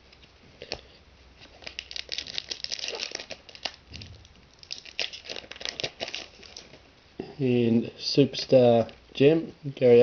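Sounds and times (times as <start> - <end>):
foil wrapper crinkling and tearing: 1.4 - 6.8.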